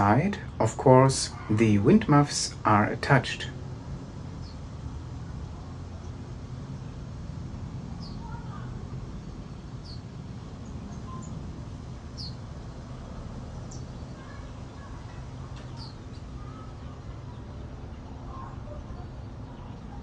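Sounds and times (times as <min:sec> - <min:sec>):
birds chirping: 0:00.0 - 0:20.0
steady low rumble: 0:00.0 - 0:20.0
fainter lower bird calls: 0:07.9 - 0:12.5, 0:13.5 - 0:20.0.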